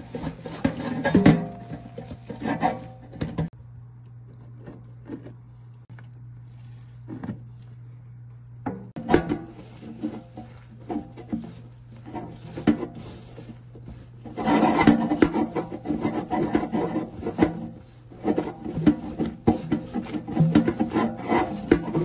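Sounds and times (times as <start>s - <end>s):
hand mixing dough in metal bowl: 0.0s - 3.6s, 8.9s - 22.0s.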